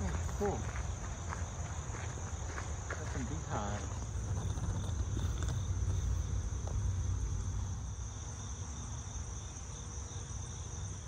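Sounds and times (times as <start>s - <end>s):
crickets chirping drone: 0.0s - 11.0s
low rumble: 3.8s - 8.0s.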